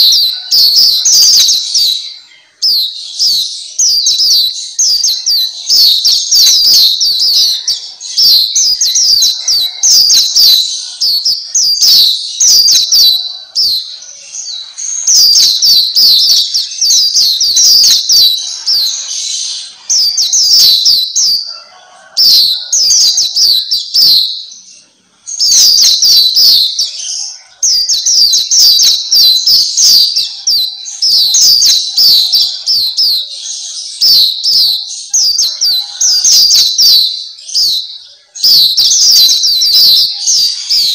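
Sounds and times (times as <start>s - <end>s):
bird twittering song: 0.0s - 40.9s.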